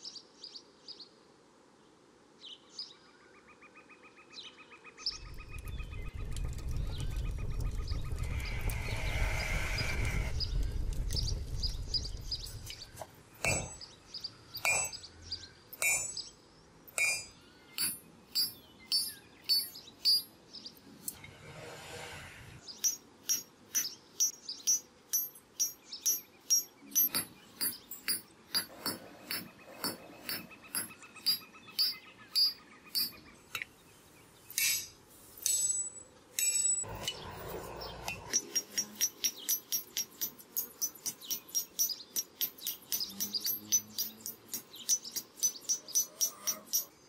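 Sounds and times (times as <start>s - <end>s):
rough rushing noise: 5.2s - 13.0s, 21.1s - 22.8s
hammer striking steel on anvil: 13.4s - 13.9s, 14.6s - 15.0s, 15.8s - 16.3s, 16.9s - 20.3s, 22.8s - 33.2s, 34.6s - 37.2s, 38.1s - 47.0s.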